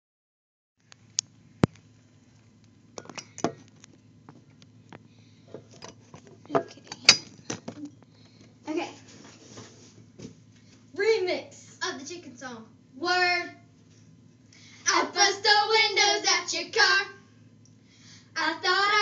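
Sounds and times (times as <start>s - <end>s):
faint low hum: 0.8s - 19.0s.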